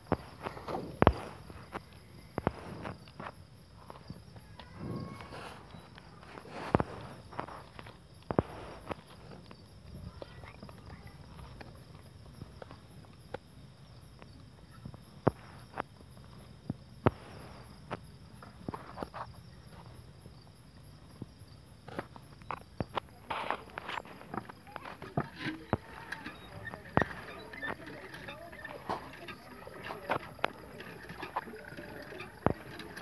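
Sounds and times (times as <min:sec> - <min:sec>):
sharp knocks and shuffles: 0:00.0 - 0:13.4, 0:21.2 - 0:31.6
crickets chirping: 0:00.0 - 0:33.0.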